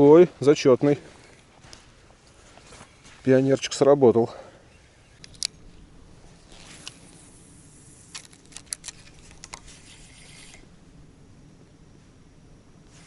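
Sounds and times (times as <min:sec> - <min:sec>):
faint rustle and hiss: 0:00.0 - 0:13.0
fishing reel clicking: 0:08.1 - 0:10.6.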